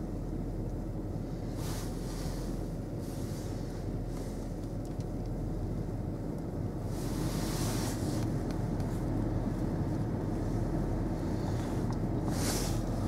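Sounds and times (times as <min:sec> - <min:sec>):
car engine idling: 0:00.0 - 0:13.0
heater blower air rush: 0:06.8 - 0:13.0.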